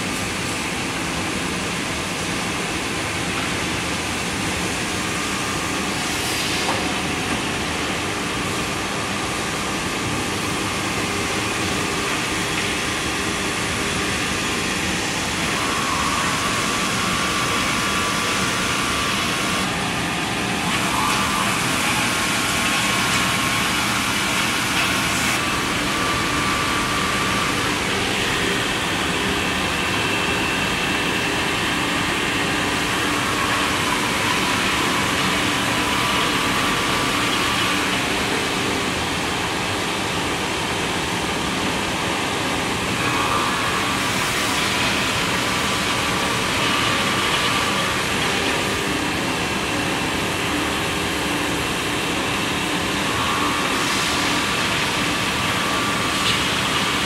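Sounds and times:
wood lathe running: 0:11.0 - 0:39.6, 0:42.8 - 0:57.0.

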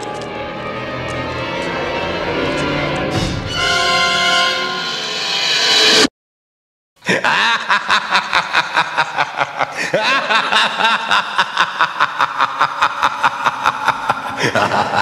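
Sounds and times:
laughter: 0:07.0 - 0:15.0.

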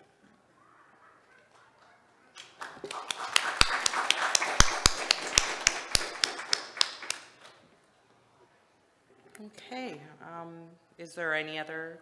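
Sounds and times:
audience applauding: 0:02.4 - 0:07.4
loud single claps: 0:02.4 - 0:07.4.

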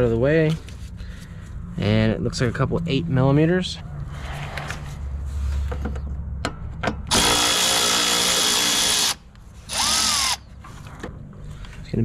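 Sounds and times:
cordless ratchet whirring: 0:07.1 - 0:10.4.

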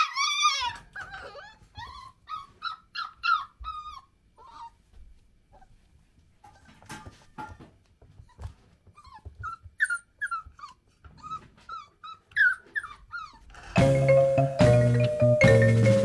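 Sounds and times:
puppy whimpering: 0:00.0 - 0:04.9, 0:08.2 - 0:13.8
marimba music: 0:13.8 - 0:16.0.

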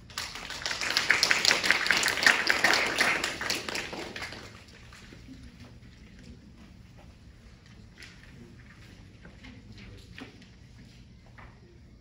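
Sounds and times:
audience applause: 0:00.0 - 0:04.8.

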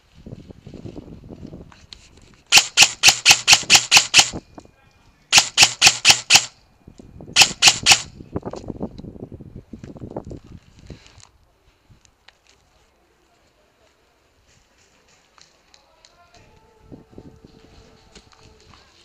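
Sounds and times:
airsoft gun firing: 0:02.5 - 0:04.4, 0:05.3 - 0:06.5, 0:07.4 - 0:08.1.

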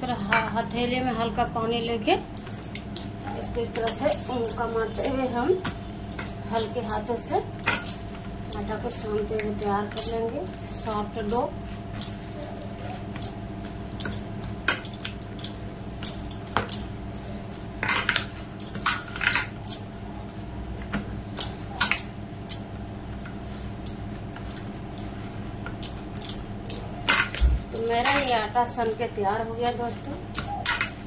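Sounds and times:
low background hum: 0:00.0 - 0:31.0
hands kneading dough on metal: 0:02.0 - 0:31.0
bangles and plate clinking: 0:17.8 - 0:19.9, 0:23.8 - 0:31.0.

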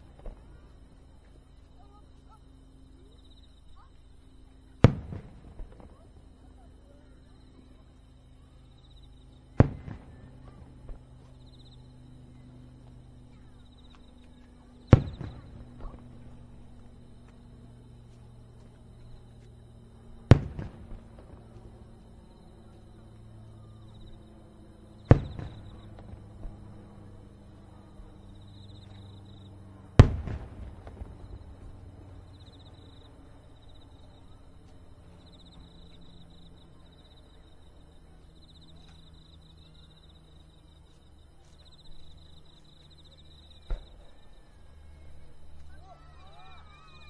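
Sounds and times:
fainter firework pops: 0:00.0 - 0:02.0, 0:04.8 - 0:06.1, 0:09.5 - 0:11.6, 0:12.8 - 0:23.4, 0:25.0 - 0:27.0, 0:30.0 - 0:33.0, 0:43.5 - 0:44.3
insects chirping: 0:00.0 - 0:47.0
firework shells bursting: 0:20.3 - 0:21.8, 0:25.1 - 0:26.6, 0:30.0 - 0:31.8.

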